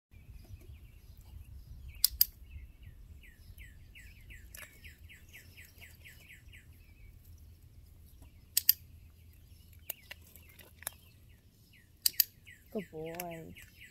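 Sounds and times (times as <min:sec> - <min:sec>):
bird chirping: 0:00.1 - 0:13.9
dog training clicker: 0:12.0 - 0:12.4.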